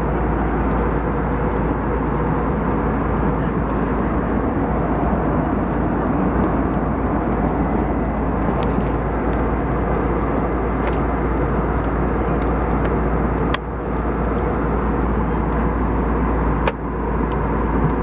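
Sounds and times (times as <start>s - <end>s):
airliner cabin engine rush: 0.0s - 18.0s.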